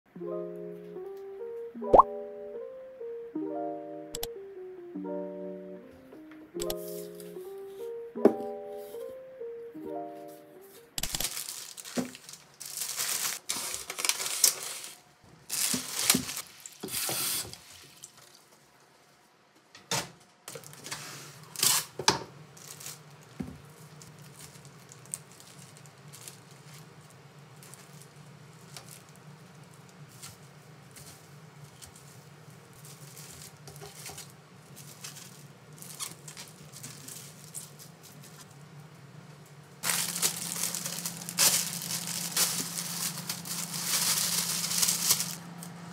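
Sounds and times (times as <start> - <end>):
plastic bags crinkling: 11.0 - 17.0, 20.5 - 22.0, 22.6 - 30.3, 30.9 - 38.5, 39.8 - 45.9
low steady hum: 34.3 - 45.9.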